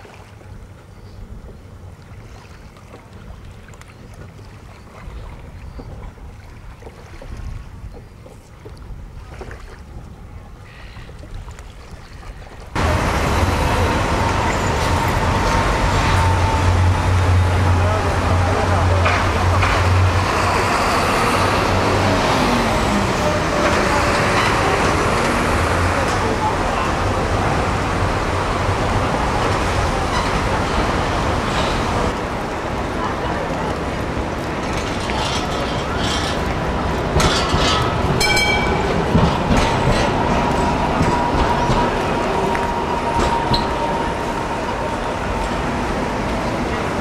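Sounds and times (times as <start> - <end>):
tram running noise: 12.7 - 47.0.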